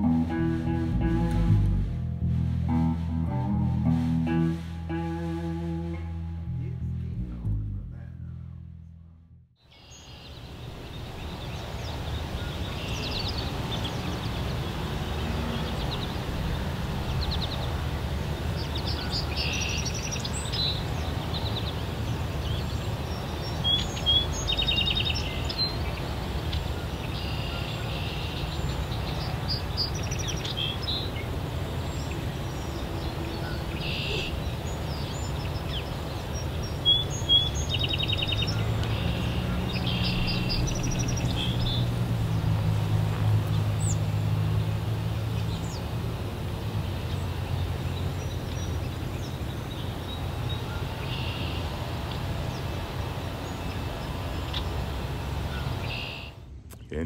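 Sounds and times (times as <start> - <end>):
low rumble: 0.0 - 9.6, 38.4 - 46.8
small birds chirping: 9.6 - 46.0.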